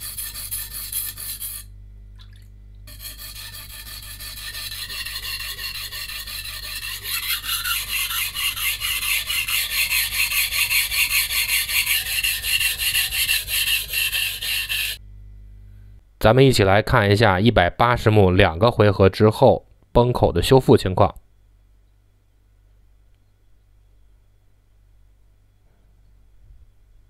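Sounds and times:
knife blade rasping on whetstone: 0.0s - 1.7s, 2.9s - 15.0s.

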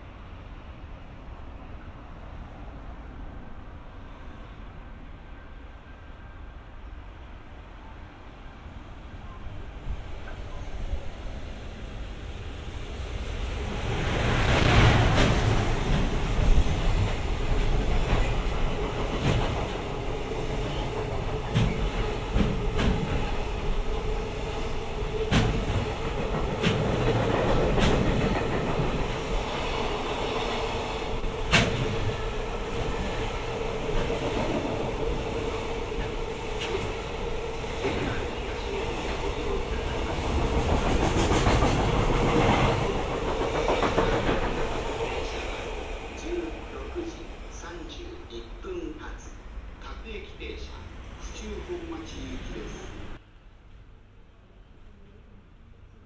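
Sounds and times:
train wagons rumbling: 12.3s - 53.2s
wheels clicking on rail joints: 37.8s - 45.4s.

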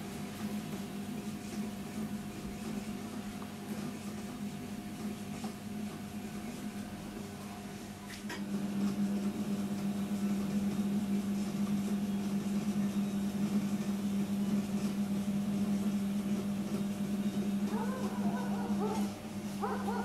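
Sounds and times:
potter's wheel motor humming: 0.0s - 20.0s.

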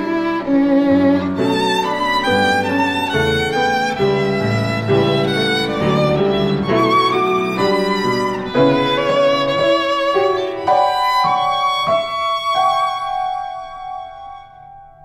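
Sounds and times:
violin melody: 0.0s - 14.9s
piano chords: 0.0s - 15.0s.

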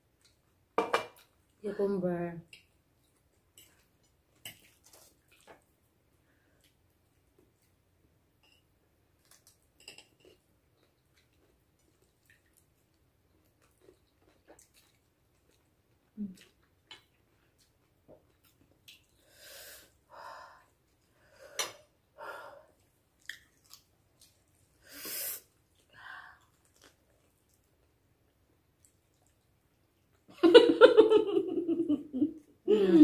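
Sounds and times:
chewing: 2.5s - 5.8s, 9.2s - 19.2s, 22.8s - 24.8s, 25.4s - 30.3s.

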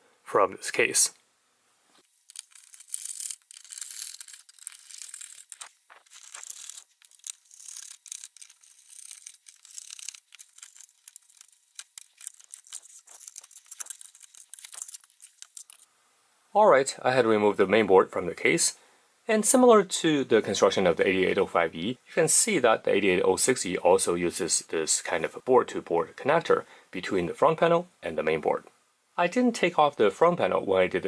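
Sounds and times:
screwdriver scraping on sheet metal: 2.2s - 15.8s
small clicks of parts: 2.2s - 15.8s.

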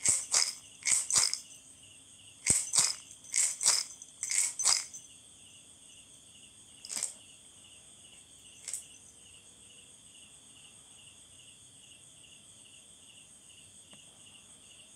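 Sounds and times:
handheld rattle shaken: 0.0s - 1.7s, 2.4s - 5.1s, 6.8s - 7.2s, 8.6s - 8.9s
insects chirping: 0.0s - 14.9s.

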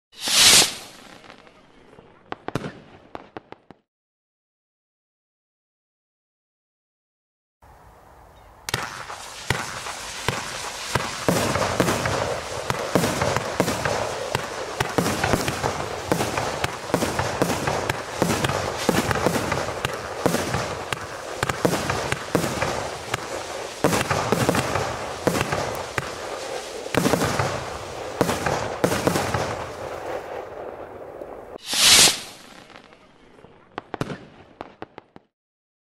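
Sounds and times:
firework spinners hissing: 0.1s - 1.2s, 8.7s - 30.4s, 31.6s - 32.8s
firework bangs and pops: 0.1s - 1.6s, 2.3s - 3.9s, 8.7s - 35.3s.

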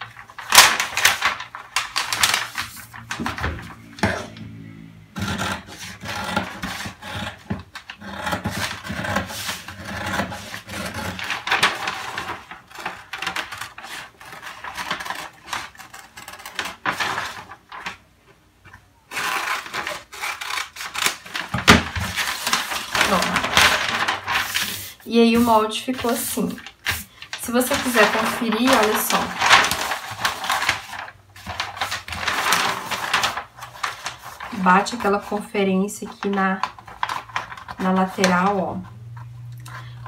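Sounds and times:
paper crinkling and rustling: 0.0s - 18.4s, 19.1s - 40.0s
scissors cutting paper: 5.1s - 17.9s, 19.1s - 35.4s, 36.0s - 38.9s.

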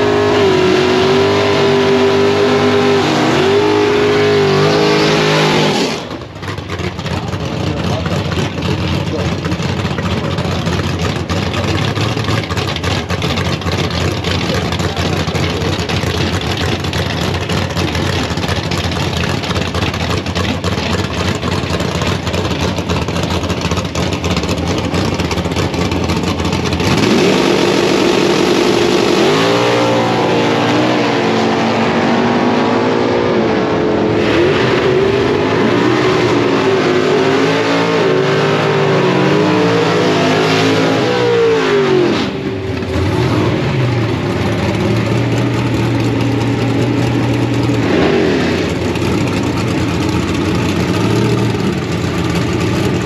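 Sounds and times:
engine revving up and down: 0.0s - 6.3s, 25.6s - 49.5s
drag racing car engines rumbling: 0.0s - 53.0s.

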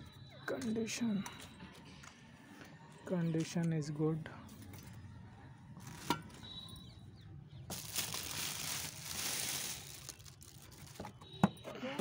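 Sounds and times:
plastic bag rustling: 7.7s - 11.1s.

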